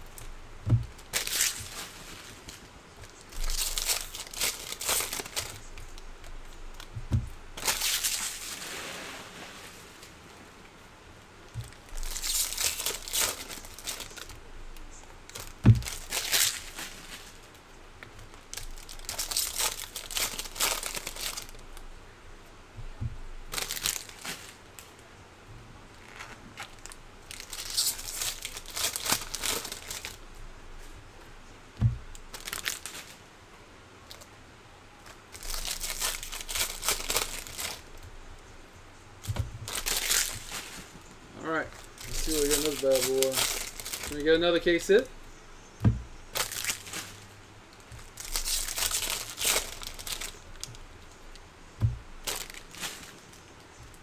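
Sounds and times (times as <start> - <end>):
short thumps: 0.6 - 1.8, 6.9 - 7.8, 15.5 - 16.1, 22.7 - 23.4, 31.8 - 32.2, 39.2 - 39.8, 45.8 - 47.2, 51.8 - 53.0
foil wrappers tearing and crinkling: 0.9 - 7.0, 7.6 - 9.3, 11.6 - 21.8, 23.5 - 24.6, 26.0 - 30.2, 32.1 - 33.2, 35.3 - 38.0, 39.3 - 41.0, 41.6 - 45.1, 46.3 - 51.4, 52.2 - 54.0.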